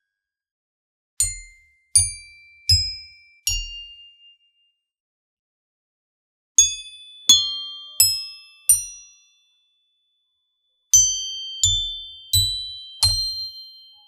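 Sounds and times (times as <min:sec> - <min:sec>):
metallophone notes struck with mallet: 0:01.3 - 0:04.3, 0:11.0 - 0:14.0.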